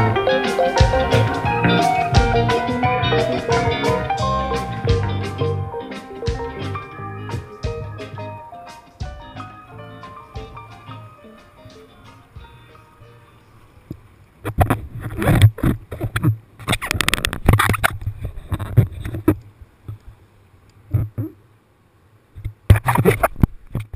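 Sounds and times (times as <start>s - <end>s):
song playing: 0.0s - 13.8s.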